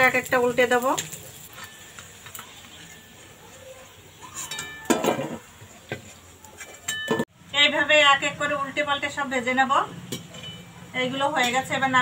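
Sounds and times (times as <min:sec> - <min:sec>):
frying oil hissing: 0:00.0 - 0:06.9
metal spoon clinking on metal: 0:04.3 - 0:05.3, 0:06.6 - 0:07.2, 0:10.1 - 0:10.8.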